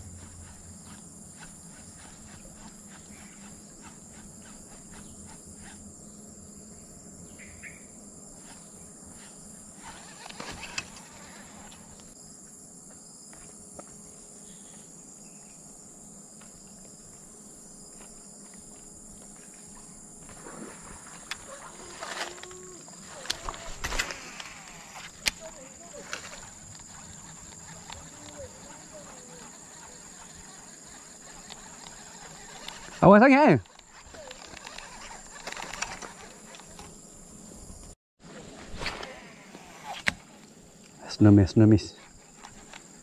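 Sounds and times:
insects chirring: 0:00.0 - 0:43.0
rustle with soft clicks: 0:21.1 - 0:37.0.

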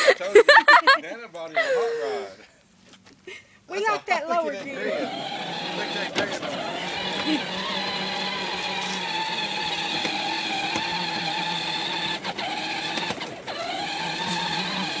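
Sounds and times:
toy car electric motor whining: 0:04.6 - 0:15.0.

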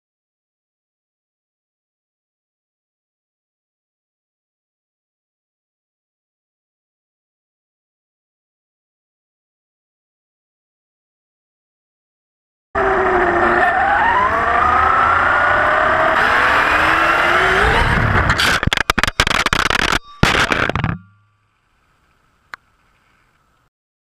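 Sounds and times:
rc car motor whine: 0:12.8 - 0:18.7
tyres rumbling on pavement: 0:12.8 - 0:18.7
rc car crashing and tumbling: 0:16.1 - 0:21.2.

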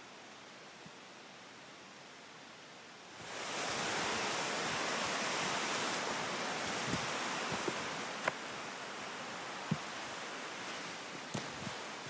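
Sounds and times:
stream water rushing: 0:00.0 - 0:12.0
footsteps on leafy trail: 0:03.2 - 0:08.6.

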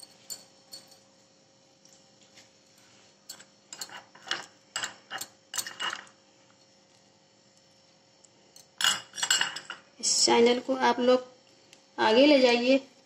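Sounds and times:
spoon scraping glass bowl: 0:03.3 - 0:06.1.

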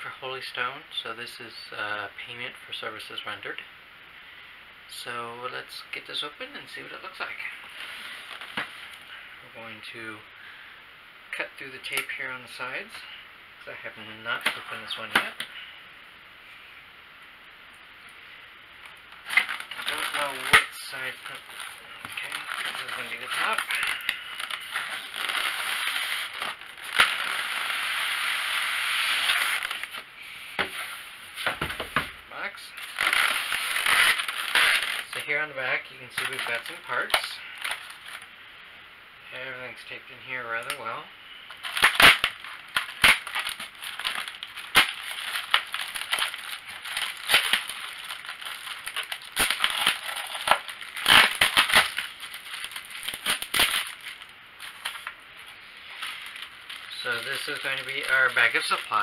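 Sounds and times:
plastic bag crinkling: 0:18.8 - 0:30.0, 0:32.7 - 0:38.3, 0:41.5 - 0:59.0.

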